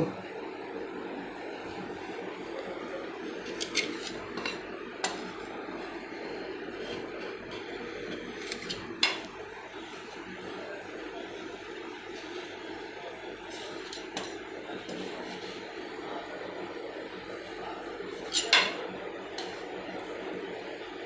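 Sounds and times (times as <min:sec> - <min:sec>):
steady low hum: 0:00.0 - 0:21.0
spatula scraping cold metal plate: 0:03.4 - 0:05.4, 0:06.7 - 0:09.3, 0:13.5 - 0:15.6, 0:18.1 - 0:19.7.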